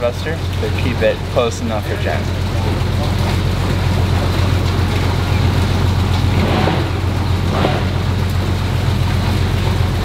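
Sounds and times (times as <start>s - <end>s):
boat engine idling: 0.0s - 10.0s
water churning alongside hull: 0.0s - 10.0s.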